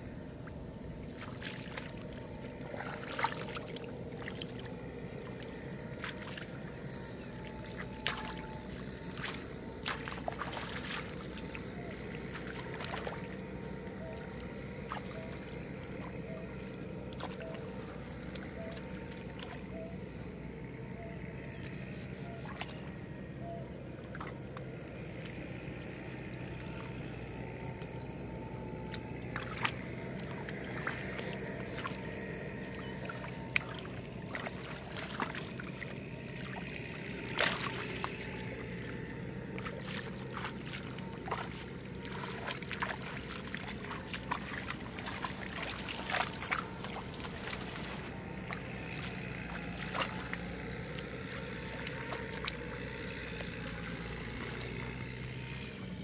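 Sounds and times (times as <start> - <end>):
shallow water sloshing and splashing: 0.0 - 56.0
steady low hum: 0.0 - 56.0.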